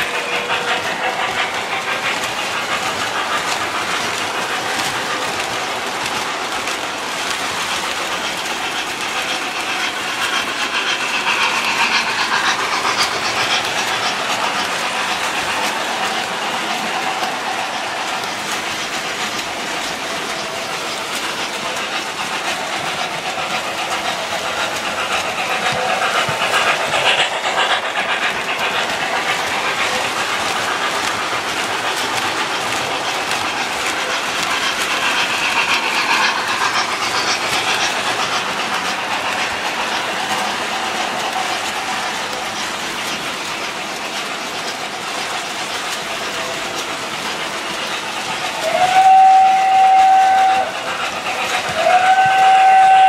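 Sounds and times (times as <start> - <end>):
model train wheels clattering: 0.0 - 53.0
electronic steam whistle: 48.6 - 50.8, 51.7 - 53.0.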